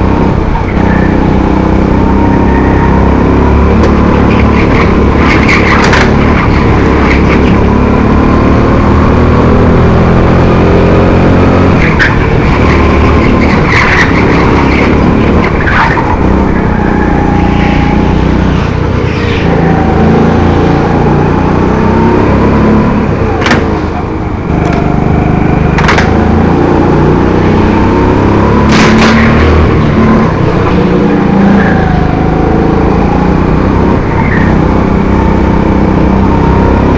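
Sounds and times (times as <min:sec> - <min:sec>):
kart engine revving: 0:00.0 - 0:36.9
tyre screeches: 0:13.1 - 0:18.0.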